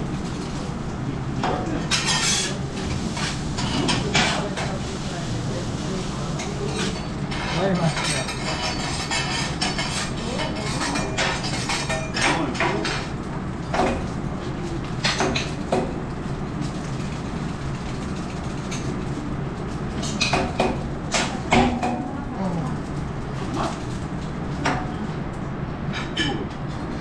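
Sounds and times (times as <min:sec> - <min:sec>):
metal spatulas clanking on griddle: 0:01.9 - 0:02.6.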